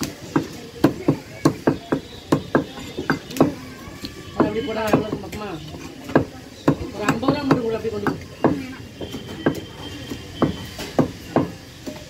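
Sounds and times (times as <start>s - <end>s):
cleaver chopping fish on wood: 0.2s - 3.6s, 6.1s - 8.7s, 10.4s - 11.6s.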